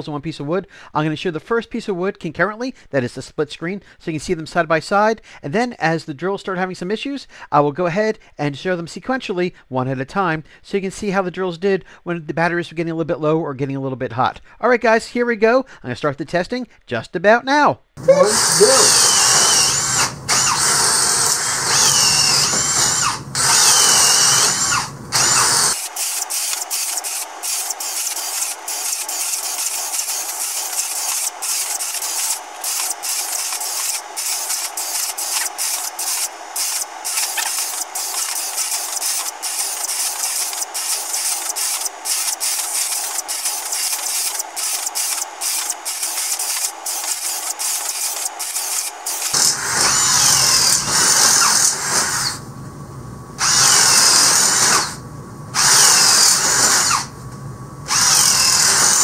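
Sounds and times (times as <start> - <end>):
cordless drills whining: 18.0 - 52.4, 53.4 - 55.0, 55.6 - 57.1, 57.9 - 59.0
drill bits boring through wood: 18.0 - 52.4, 53.4 - 55.0, 55.6 - 57.1, 57.9 - 59.0.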